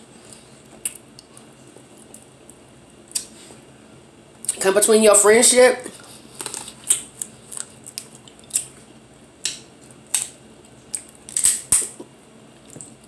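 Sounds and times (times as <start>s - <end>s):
person chewing: 0.2s - 2.3s, 6.0s - 13.0s.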